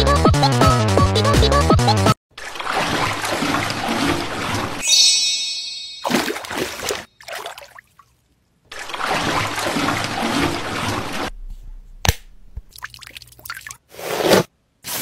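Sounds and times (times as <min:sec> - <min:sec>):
running and splashing water: 0:02.4 - 0:04.8, 0:06.0 - 0:11.3.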